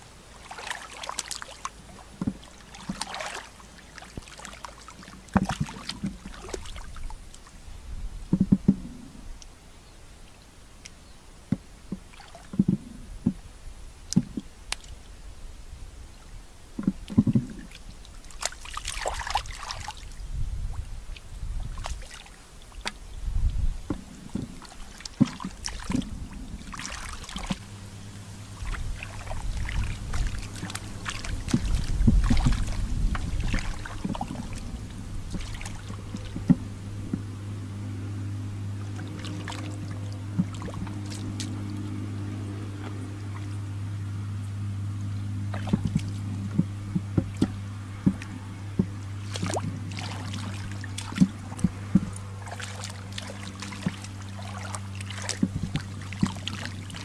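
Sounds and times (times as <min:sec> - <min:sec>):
steady low hum: 0:00.0 - 0:57.0
hands splashing in muddy water: 0:00.3 - 0:07.5, 0:17.2 - 0:23.0, 0:24.3 - 0:37.3, 0:38.8 - 0:42.1, 0:45.5 - 0:57.0
wet slaps and squelches: 0:00.4 - 0:07.5, 0:18.2 - 0:20.0, 0:24.4 - 0:26.1, 0:26.7 - 0:27.6, 0:28.6 - 0:37.2, 0:39.0 - 0:41.9, 0:45.5 - 0:57.0.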